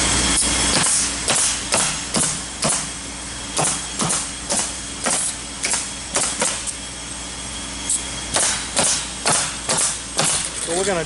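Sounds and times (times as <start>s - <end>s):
pneumatic stapler cracks: 0.4s - 2.9s, 3.6s - 6.8s, 7.9s - 10.6s.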